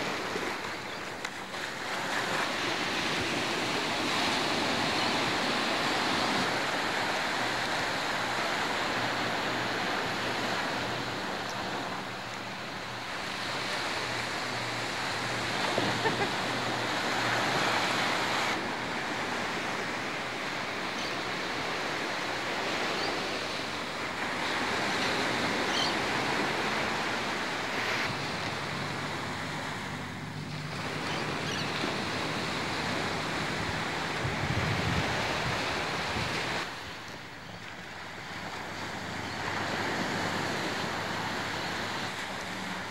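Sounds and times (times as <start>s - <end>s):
waves and surf: 0.0s - 42.9s
wind buffeting microphone: 28.0s - 36.7s.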